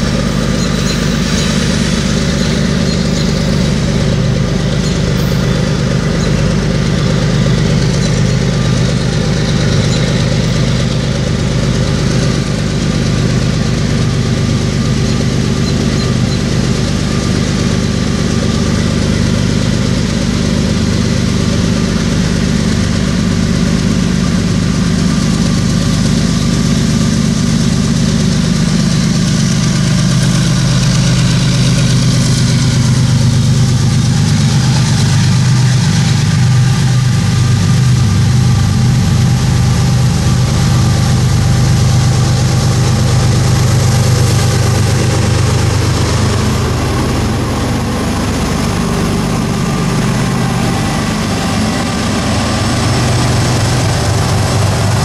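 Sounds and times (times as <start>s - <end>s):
diesel locomotive engines droning: 0.0s - 55.0s.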